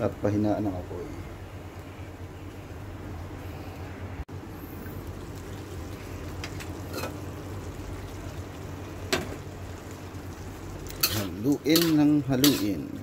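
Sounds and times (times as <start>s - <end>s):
pork sizzling in a wok: 4.8s - 13.0s.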